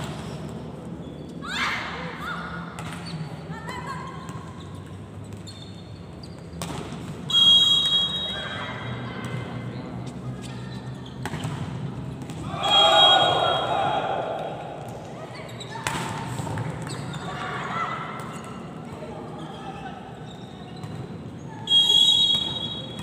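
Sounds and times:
referee's whistle blast: 7.3 - 8.6, 12.6 - 14.0, 21.7 - 23.0
players' voices echoing: 12.0 - 20.3.

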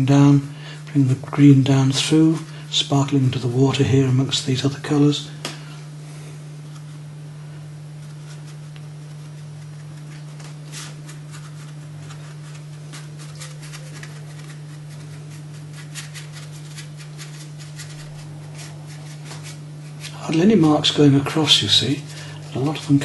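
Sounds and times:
steady low hum: 0.0 - 23.0
dry paintbrush scratching paper: 8.0 - 23.0.

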